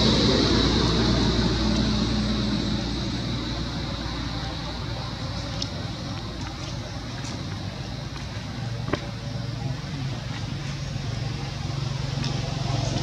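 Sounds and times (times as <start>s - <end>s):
outdoor background noise: 0.0s - 13.0s
vehicle engine drone: 0.0s - 13.0s.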